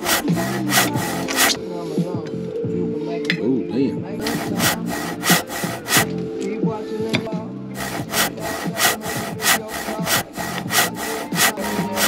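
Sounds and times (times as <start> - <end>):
knife sawing on cutting board: 0.0 - 1.6, 4.2 - 6.1, 7.8 - 12.0
background music: 0.0 - 12.0.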